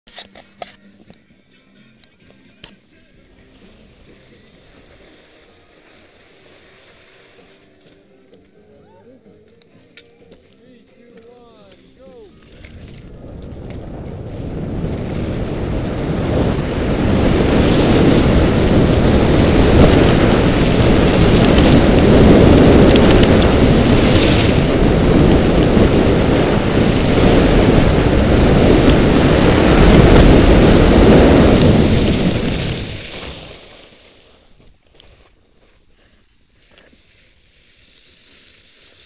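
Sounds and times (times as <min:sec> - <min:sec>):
skis running on snow: 0:10.6 - 0:39.0
wind buffeting microphone: 0:12.3 - 0:33.5.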